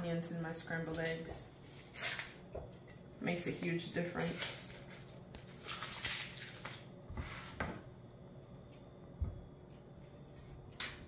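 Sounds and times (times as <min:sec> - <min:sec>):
onion skin rustling and crackling: 0:04.0 - 0:06.9.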